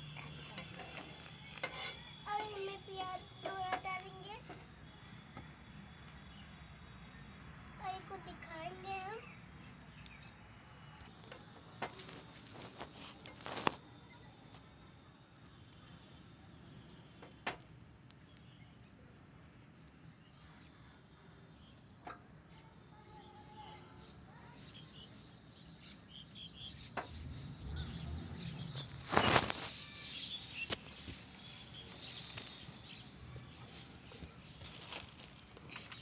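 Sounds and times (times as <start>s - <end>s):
faint bird chirps: 0.0s - 17.4s.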